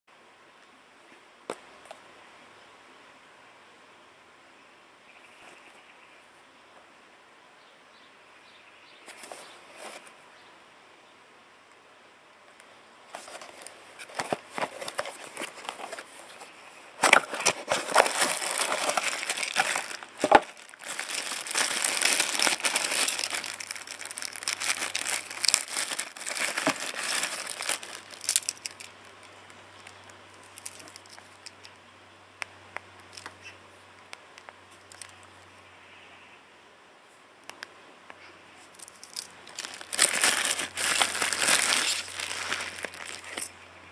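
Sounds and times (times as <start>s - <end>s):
plastic bag crinkling: 13.2s - 31.7s, 38.7s - 43.5s.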